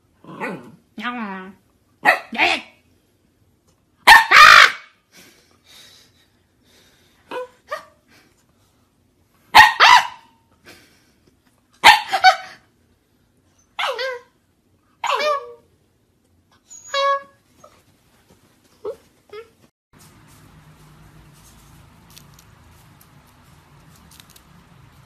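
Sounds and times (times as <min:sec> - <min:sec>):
dog barking: 0:02.0 - 0:02.5, 0:04.0 - 0:05.0, 0:09.5 - 0:10.4, 0:11.8 - 0:12.5, 0:15.0 - 0:15.6.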